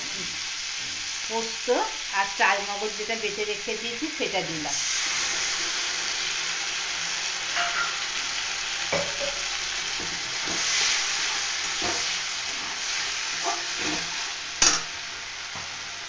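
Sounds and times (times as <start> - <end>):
paste sizzling in hot oil: 0.0 - 16.0
metal spatula scraping a pan: 7.5 - 8.1, 10.0 - 14.9.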